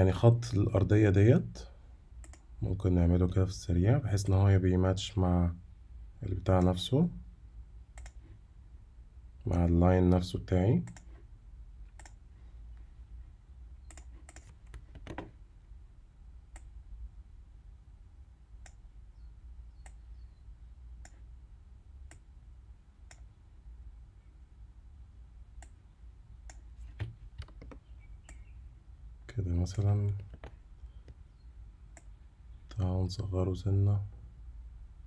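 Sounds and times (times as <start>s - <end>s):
low steady hum: 0.0s - 35.0s
computer mouse clicks: 2.2s - 2.5s, 8.0s - 8.3s, 10.8s - 11.2s, 11.9s - 12.2s, 13.8s - 15.3s, 16.5s - 16.7s.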